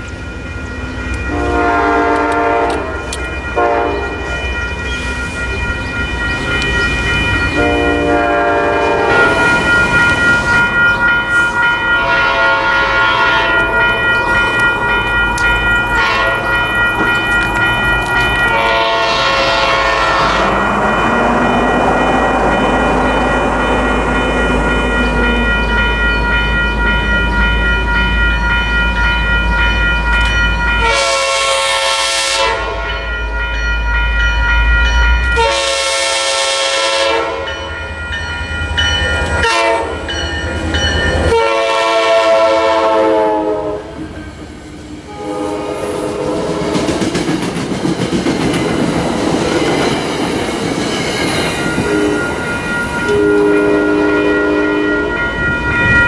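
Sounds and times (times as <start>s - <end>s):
train horn blasts: 1.3s - 4.2s, 7.6s - 9.4s, 12.0s - 14.1s, 16.0s - 16.6s, 18.5s - 20.8s, 30.8s - 33.0s, 35.4s - 37.6s, 39.4s - 40.0s, 41.3s - 44.0s, 45.1s - 46.8s, 51.8s - 52.3s, 53.1s - 55.2s
train wheels clicking over rails: 46.4s - 53.2s.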